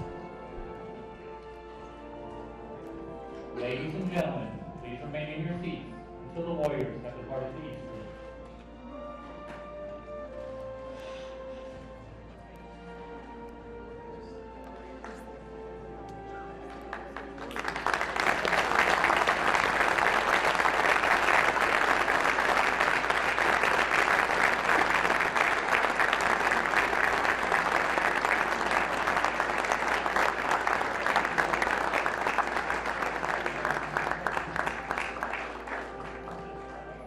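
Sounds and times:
large audience applauding: 16.6 - 37.0.

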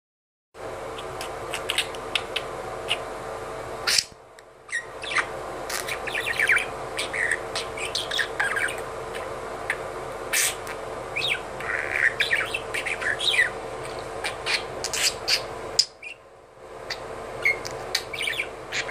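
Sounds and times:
budgerigar chattering: 1.0 - 3.1, 4.7 - 13.6, 14.2 - 16.2, 16.9 - 18.9.

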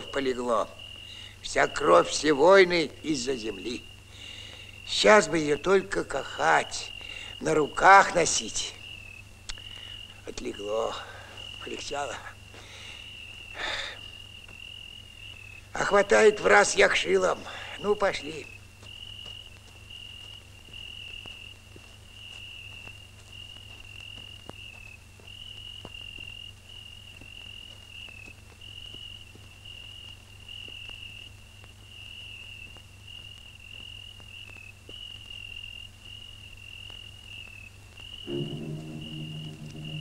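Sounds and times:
crickets chirping: 0.0 - 40.0
low steady hum: 38.3 - 40.0
music: 38.3 - 40.0.

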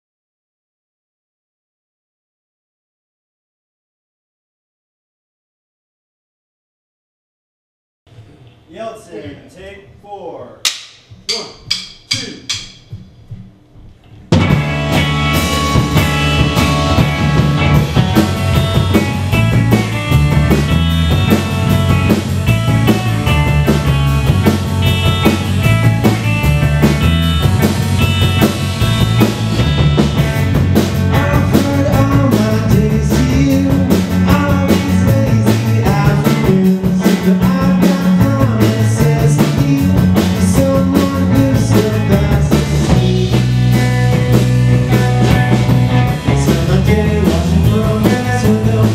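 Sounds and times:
drum kit: 10.6 - 48.9
electric bass: 12.9 - 48.9
electric guitar through amp: 14.3 - 48.9.

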